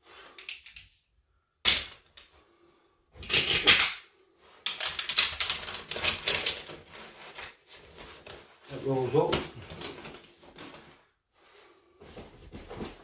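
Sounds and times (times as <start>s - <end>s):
fabric rustling: 6.6s - 11.1s.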